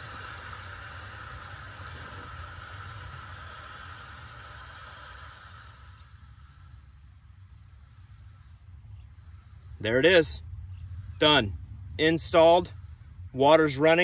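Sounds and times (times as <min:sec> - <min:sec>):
water hissing into tank: 0:00.0 - 0:06.8.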